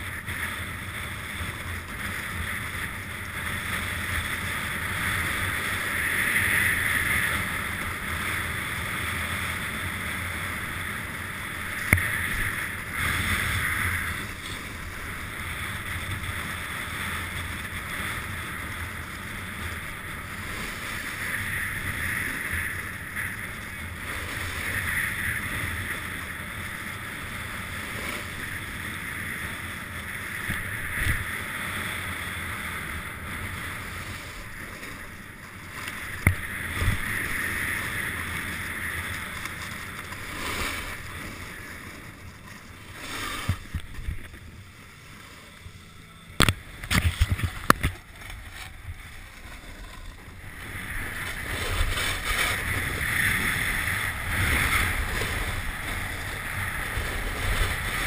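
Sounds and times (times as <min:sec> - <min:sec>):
snowboard scraping on snow: 0:00.0 - 0:58.0
wind on microphone: 0:00.0 - 0:58.0.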